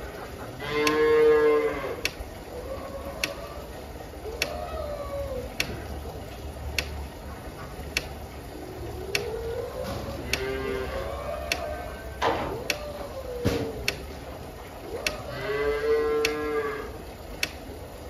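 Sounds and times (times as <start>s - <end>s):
cattle mooing: 0.4s - 3.8s, 9.2s - 12.2s, 15.0s - 17.0s
sharp ticking: 0.8s - 4.7s, 5.4s - 13.0s, 13.8s - 18.0s.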